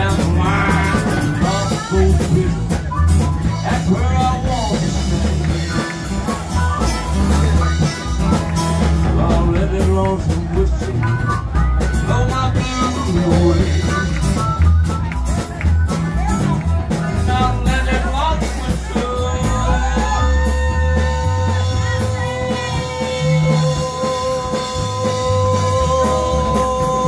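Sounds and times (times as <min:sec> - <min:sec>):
man singing into microphone: 0:00.0 - 0:06.0, 0:09.0 - 0:14.3, 0:16.9 - 0:27.0.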